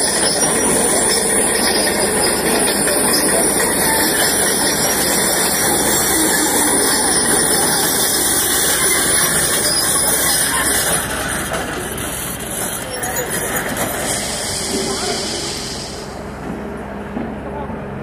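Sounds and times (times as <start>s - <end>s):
excavator engines running: 0.0s - 18.0s.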